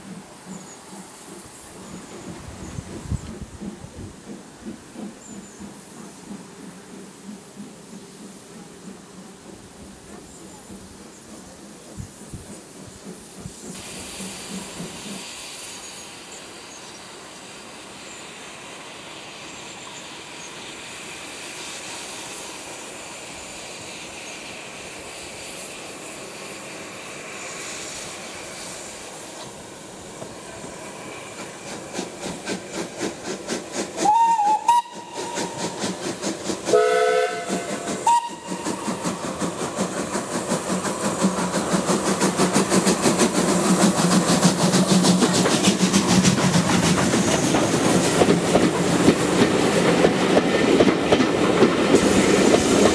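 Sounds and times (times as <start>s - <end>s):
locomotive chuffing beat: 0.0s - 16.4s, 21.0s - 52.9s
steam hissing: 0.0s - 52.9s
steam whistle blasts: 34.0s - 35.8s, 36.7s - 39.0s.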